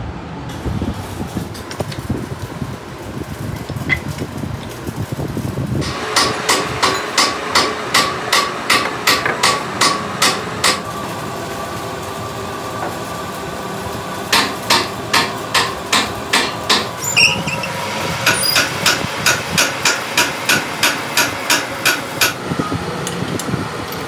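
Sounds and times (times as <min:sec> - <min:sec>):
hammer blows on metal: 0:05.8 - 0:10.8.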